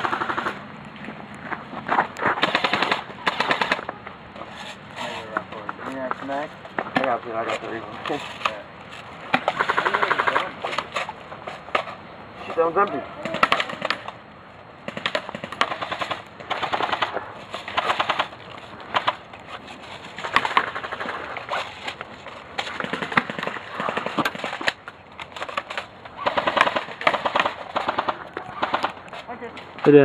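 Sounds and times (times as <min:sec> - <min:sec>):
airsoft guns firing bursts: 0:00.0 - 0:00.6, 0:02.4 - 0:03.9, 0:09.3 - 0:10.6, 0:13.2 - 0:14.1, 0:14.9 - 0:19.2, 0:20.2 - 0:21.4, 0:22.7 - 0:24.8, 0:26.2 - 0:29.0.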